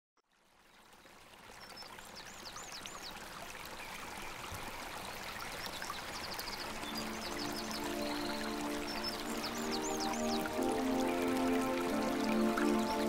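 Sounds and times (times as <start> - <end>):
water trickling: 0.2 - 13.0
birds calling: 6.3 - 13.0
high arched bird calls: 6.3 - 13.0.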